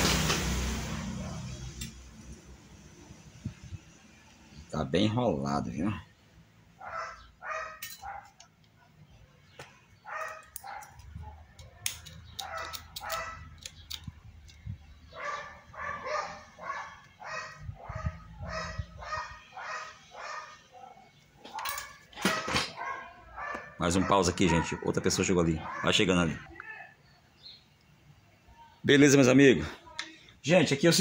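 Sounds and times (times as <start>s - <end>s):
dog barking: 6.8s - 8.4s, 10.0s - 11.5s, 12.4s - 13.5s, 15.1s - 26.2s
clicks and handling noise: 9.5s - 14.7s, 21.2s - 22.9s.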